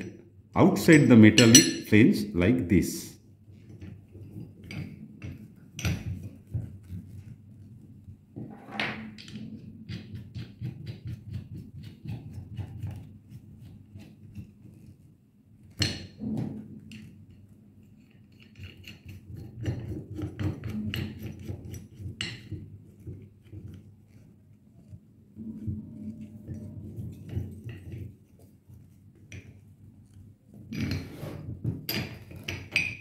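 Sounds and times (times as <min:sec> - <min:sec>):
metal parts clinking and knocking: 0:31.8 - 0:33.0.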